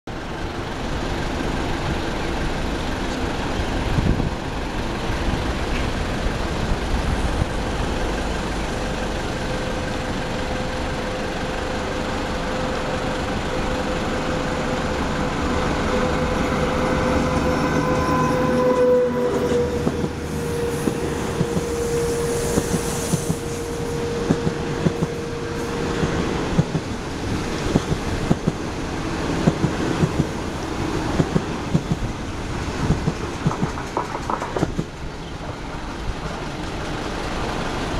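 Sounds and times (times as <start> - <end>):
electric train passing: 0.1 - 37.9
train wheels clattering over rail joints: 26.0 - 37.9.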